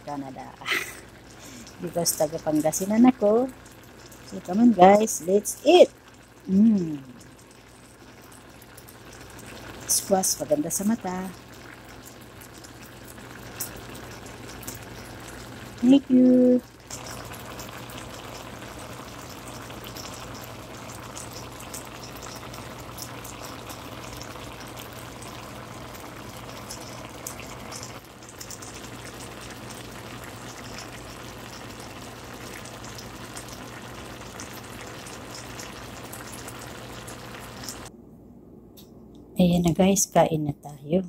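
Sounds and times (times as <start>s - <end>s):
stew bubbling and popping: 0.0s - 37.9s
low steady hum: 0.0s - 41.0s.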